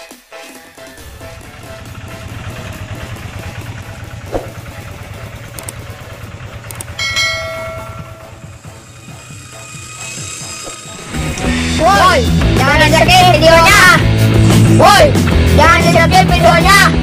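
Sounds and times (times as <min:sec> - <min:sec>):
hand tractor engine chugging: 0:01.0 - 0:09.9
brief high tone: 0:07.0 - 0:08.7.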